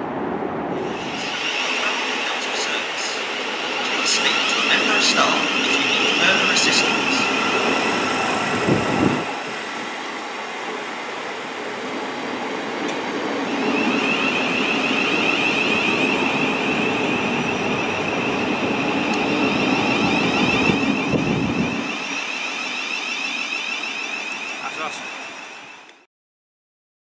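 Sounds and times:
train wheels rumbling: 0.0 - 25.9
high electric whine: 13.4 - 26.0.

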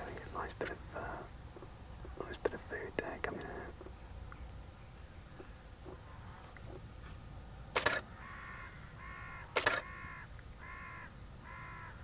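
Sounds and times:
camera shutter rapid clicks: 7.7 - 8.1, 9.6 - 9.9
crow cawing: 7.8 - 12.0.

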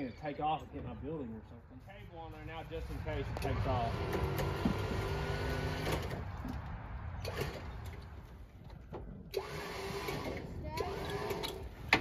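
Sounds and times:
electric winch whirring: 3.4 - 6.2, 7.2 - 8.0, 9.3 - 11.9.

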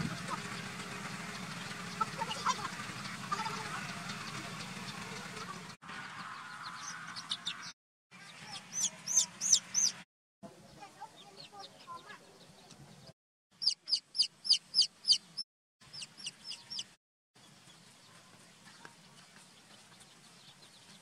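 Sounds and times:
baby chicks peeping: 0.0 - 10.0, 11.1 - 21.0.

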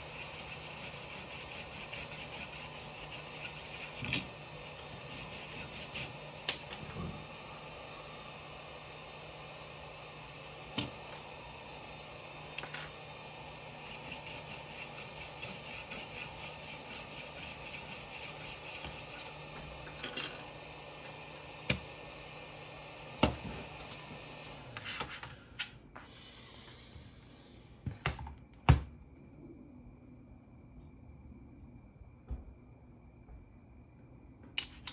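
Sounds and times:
fast rhythmic scraping: 0.0 - 4.2, 5.0 - 6.2, 13.8 - 19.4
hot air station blowing with hum: 0.0 - 30.7.

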